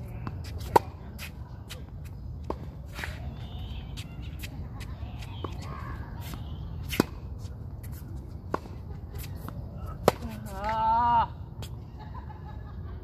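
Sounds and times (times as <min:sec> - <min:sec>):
steady low rumble: 0:00.0 - 0:13.0
tennis ball hit and bouncing: 0:00.2 - 0:03.3, 0:03.9 - 0:10.8.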